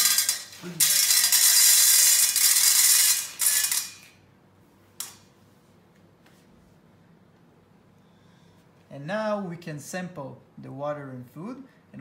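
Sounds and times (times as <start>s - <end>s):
pet food pellets rattling into metal bowl: 0.0s - 4.1s.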